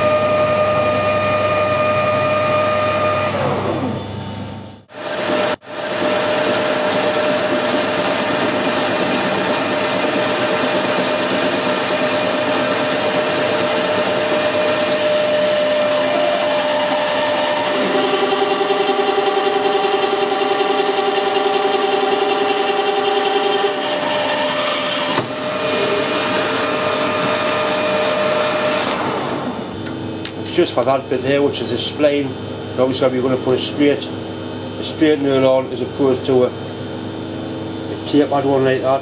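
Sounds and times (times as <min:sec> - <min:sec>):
metal lathe whine: 0:00.0 - 0:39.0.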